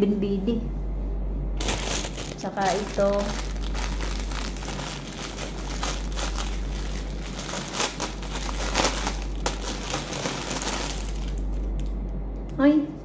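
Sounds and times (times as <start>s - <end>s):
plastic bag crinkling: 1.6s - 12.0s.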